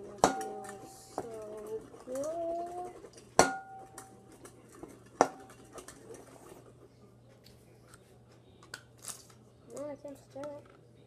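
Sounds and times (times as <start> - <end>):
spoon knocking on bowl: 0.2 - 0.8, 3.4 - 4.1
light scraping and tapping: 0.3 - 8.4.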